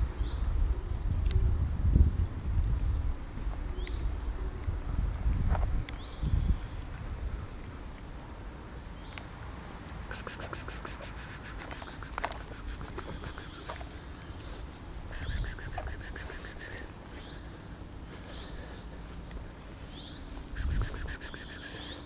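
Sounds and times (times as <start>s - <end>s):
insect rasping trill: 10.1s - 13.8s, 20.6s - 21.9s
short high chirp: 20.6s - 21.9s.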